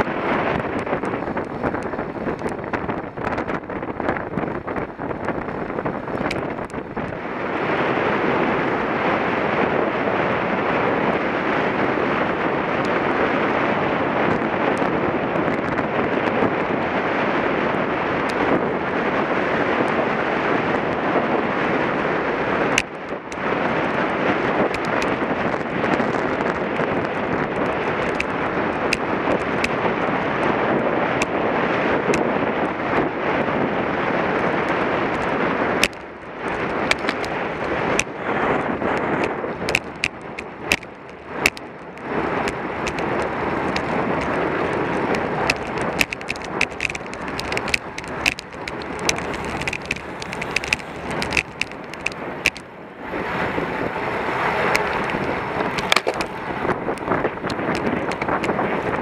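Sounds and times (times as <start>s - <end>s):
tyre and road noise: 0.0s - 59.0s
wind rushing over microphone: 0.0s - 59.0s
sharp clicks and rattles: 0.3s - 7.2s, 24.6s - 29.8s, 34.6s - 52.8s, 53.4s - 59.0s.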